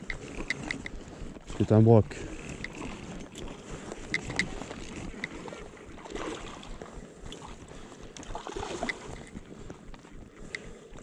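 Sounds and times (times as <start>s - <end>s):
fishing reel clicks: 2.4s - 5.5s.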